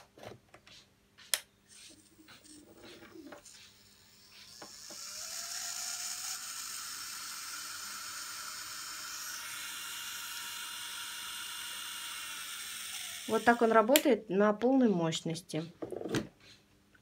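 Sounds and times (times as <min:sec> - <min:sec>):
nail drill motor whine: 0:01.8 - 0:14.0.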